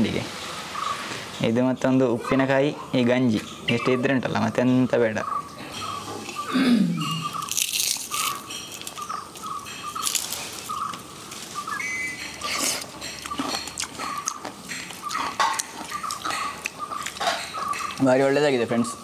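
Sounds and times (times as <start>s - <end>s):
bird calling: 2.2s - 19.0s
crunching food: 7.2s - 18.0s.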